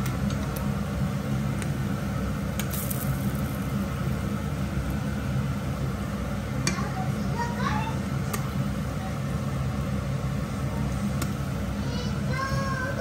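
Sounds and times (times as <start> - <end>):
fish deep-frying in hot oil: 0.0 - 7.0
constant low hum: 0.0 - 13.0.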